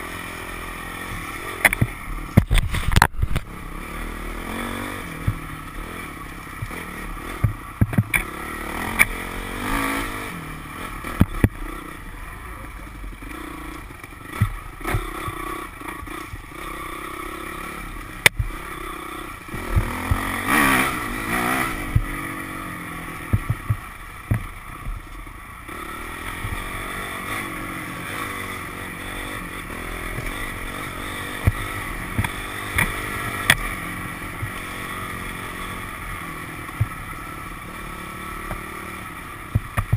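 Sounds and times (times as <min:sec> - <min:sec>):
dirt bike engine revving: 0:00.0 - 0:39.9
knocks and clatter over bumps: 0:01.0 - 0:03.5, 0:05.1 - 0:09.3, 0:11.0 - 0:11.6, 0:13.8 - 0:16.6, 0:18.2 - 0:18.6, 0:19.5 - 0:22.3, 0:23.2 - 0:25.3, 0:26.2 - 0:27.4, 0:29.2 - 0:35.8, 0:36.7 - 0:37.0, 0:39.4 - 0:39.9.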